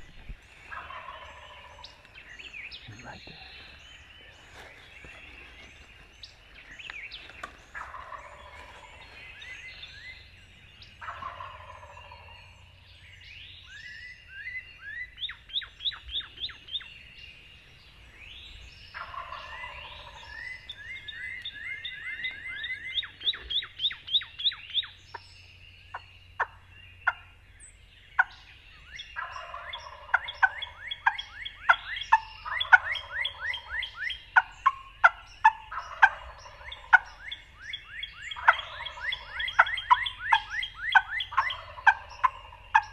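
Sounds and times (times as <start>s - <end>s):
songbirds singing: 0.0s - 42.9s
turkey gobbling: 0.7s - 2.1s, 7.7s - 10.3s, 11.0s - 12.7s, 18.9s - 25.2s, 25.9s - 27.3s, 28.2s - 28.5s, 29.2s - 42.9s.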